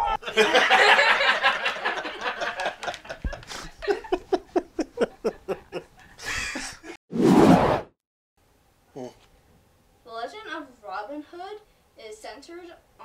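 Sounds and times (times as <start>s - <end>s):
men laughing hard: 0.0s - 7.0s.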